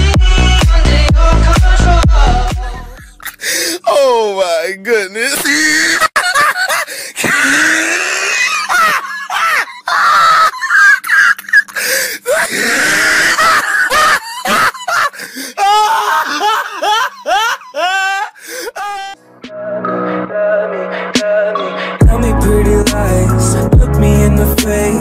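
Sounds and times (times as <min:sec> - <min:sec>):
people laughing and shrieking: 0:05.6 - 0:19.2.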